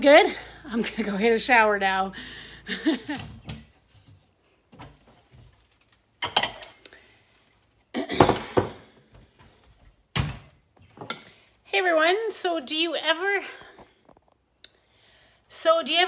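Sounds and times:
cabinets and dishes clattering: 0:06.2 - 0:06.8, 0:08.0 - 0:09.6.

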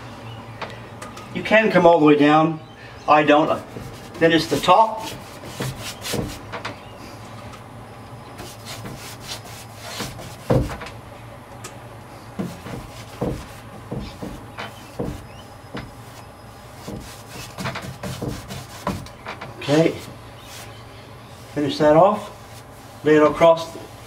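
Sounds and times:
paintbrush strokes on wood: 0:19.8 - 0:24.0.

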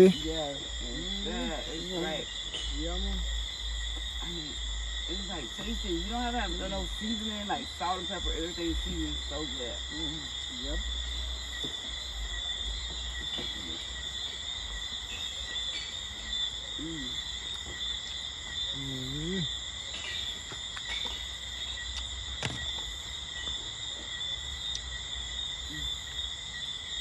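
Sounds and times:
night insects trilling: 0:00.0 - 0:27.0.

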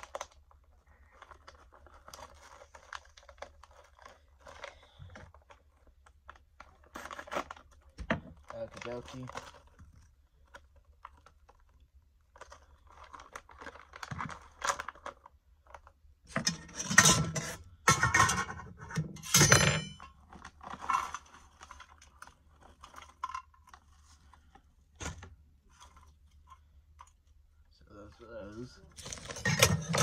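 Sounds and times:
snack packet rustling: 0:00.0 - 0:16.1, 0:20.2 - 0:24.7, 0:28.6 - 0:29.4.

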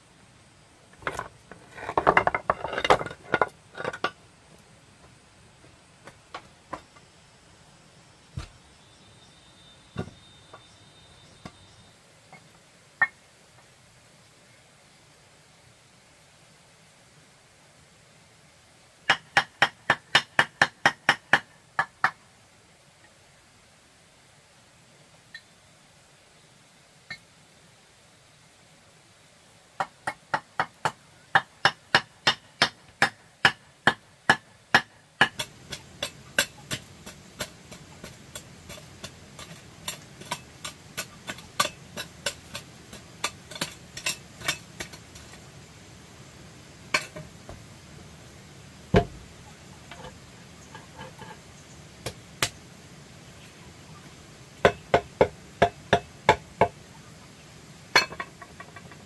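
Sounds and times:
wooden pole tamping earth: 0:01.0 - 0:04.2, 0:34.3 - 0:45.5, 0:48.9 - 0:51.4
knocks on flagstone: 0:48.9 - 0:49.2.

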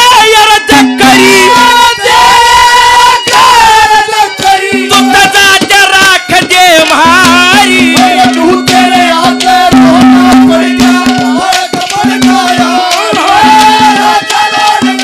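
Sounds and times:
instrumental accompaniment: 0:00.0 - 0:15.0
man singing through loudspeakers: 0:00.0 - 0:15.0.

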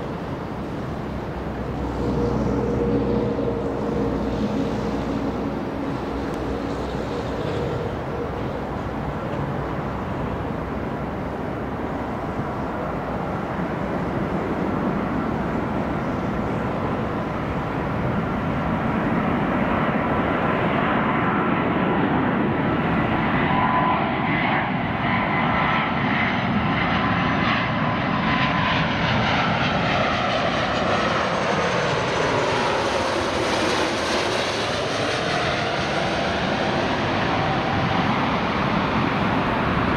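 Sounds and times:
jet airliner rumble and whine: 0:00.0 - 0:39.9.

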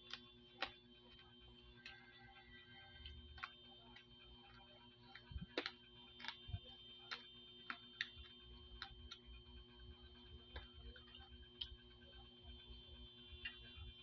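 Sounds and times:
eating clicks and smacks: 0:00.0 - 0:01.2, 0:02.9 - 0:12.0
faint steady whine: 0:00.0 - 0:14.0.

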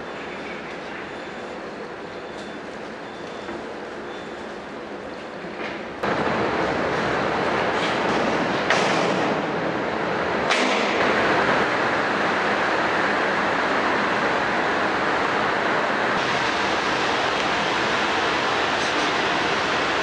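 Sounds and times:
loud rushing noise: 0:06.0 - 0:20.0.

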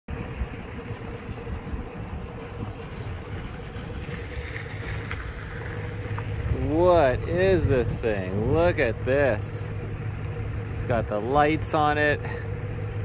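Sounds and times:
wind buffeting microphone: 0:00.1 - 0:09.1
steady low hum: 0:00.1 - 0:13.0.

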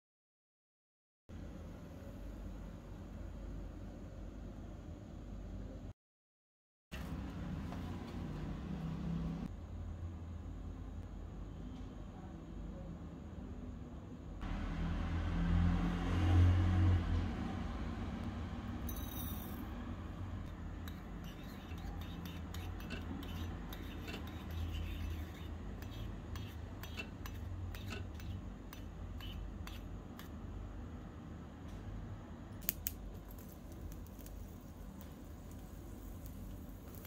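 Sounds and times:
metal spoon clicking and scraping: 0:20.8 - 0:30.3.

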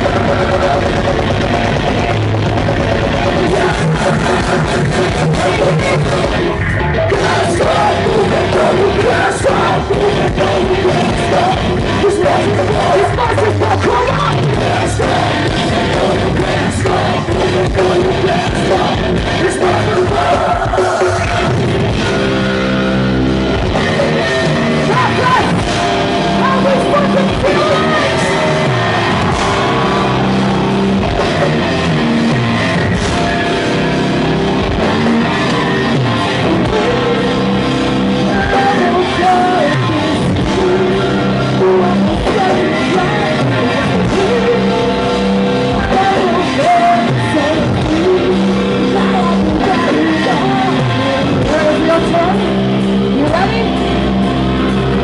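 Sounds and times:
bass and drums: 0:00.0 - 0:55.0
distorted electric guitar: 0:00.0 - 0:55.0
woman shouting and singing: 0:24.9 - 0:25.6, 0:26.4 - 0:28.6, 0:38.3 - 0:39.8, 0:53.1 - 0:53.8.

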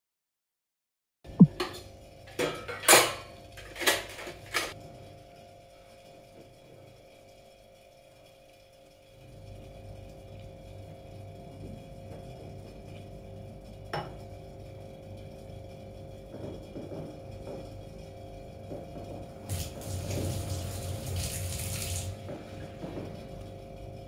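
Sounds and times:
water boiling in pot: 0:14.5 - 0:24.0.

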